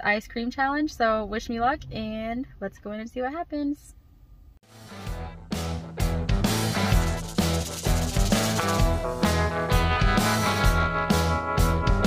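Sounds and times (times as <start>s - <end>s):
guitar music with steady beat: 4.6s - 12.0s.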